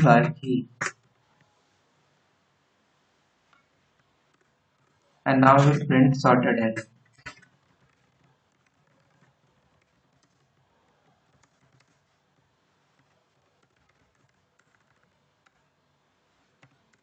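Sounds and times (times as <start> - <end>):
faint keyboard typing: 3.5 - 17.0.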